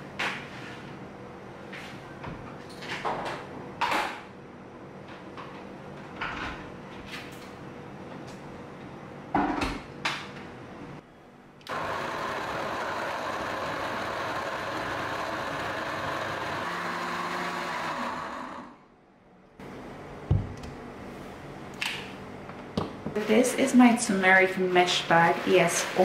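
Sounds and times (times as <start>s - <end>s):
blender running: 11.7s - 18.8s.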